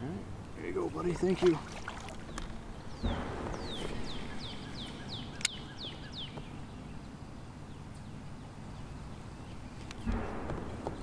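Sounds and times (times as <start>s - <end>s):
steady low rumble: 2.0s - 11.0s
songbird whistling: 2.3s - 6.9s
sharp click: 5.4s - 5.6s.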